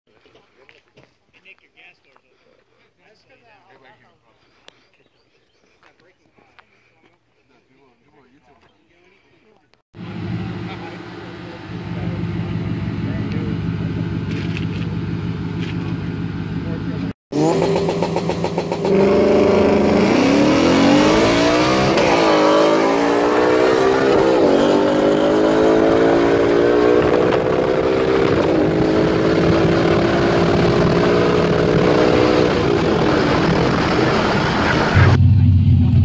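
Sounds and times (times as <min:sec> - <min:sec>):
car engine at full throttle: 0:10.0 - 0:36.0.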